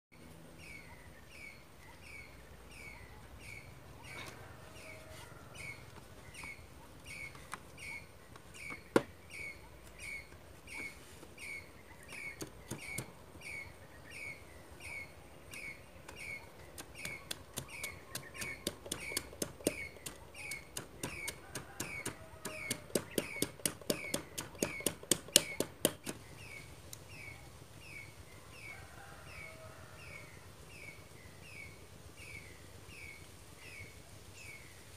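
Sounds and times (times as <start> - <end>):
stick knocking inside bamboo tube: 16.8 - 26.2.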